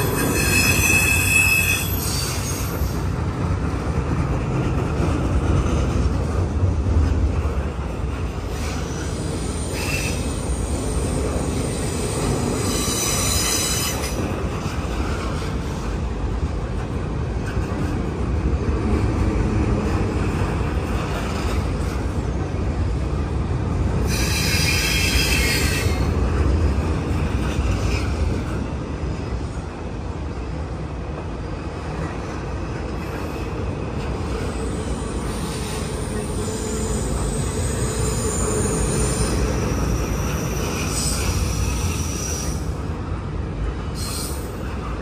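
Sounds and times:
high-pitched wheel squeal: 0.0s - 2.9s, 12.6s - 14.2s
train wheels rumbling on rail: 0.0s - 45.0s.

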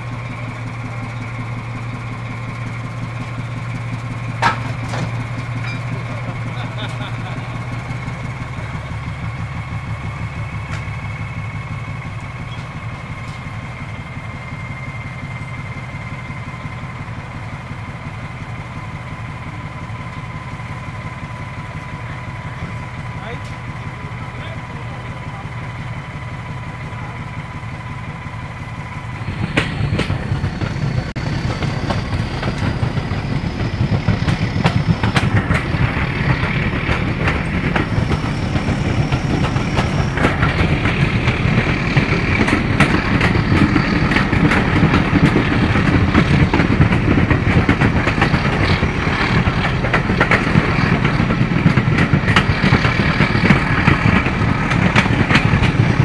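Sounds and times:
diesel locomotive engine running: 0.0s - 56.0s.

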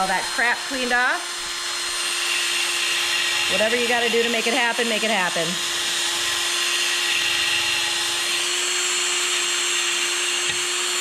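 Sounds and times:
drill motor whine: 0.0s - 11.0s.

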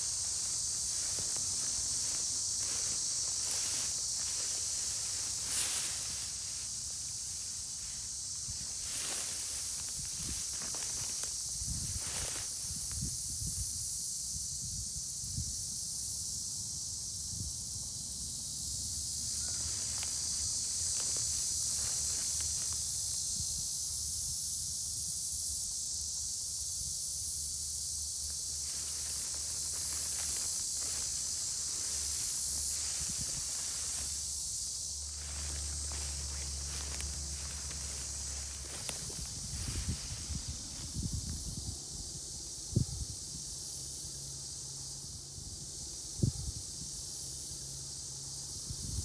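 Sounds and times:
footsteps swishing through dry grass: 0.0s - 13.2s, 19.4s - 23.4s, 28.1s - 41.5s
steady high-pitched hiss: 0.0s - 49.0s.

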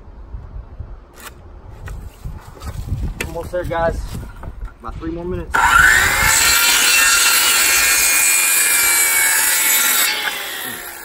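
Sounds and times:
circular saw cutting wood: 5.5s - 11.0s.

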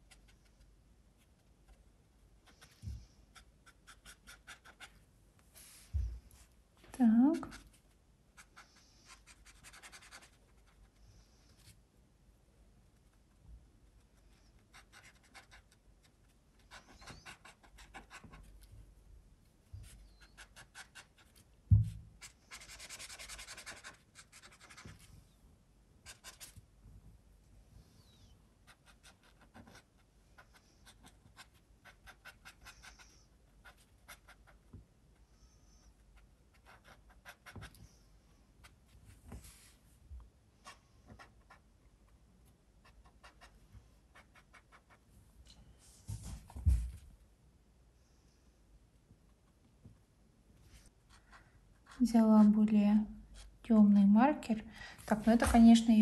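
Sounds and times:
marker scratching on paper: 2.4s - 5.0s, 8.4s - 10.8s, 14.6s - 18.5s, 19.8s - 21.4s, 22.2s - 25.1s, 26.0s - 26.6s, 28.6s - 34.6s, 36.5s - 37.8s, 42.8s - 45.0s.

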